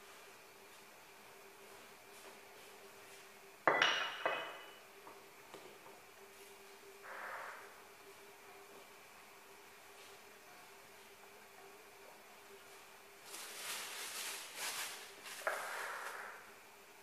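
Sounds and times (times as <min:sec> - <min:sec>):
kitchenware clinking: 0:03.6 - 0:04.8.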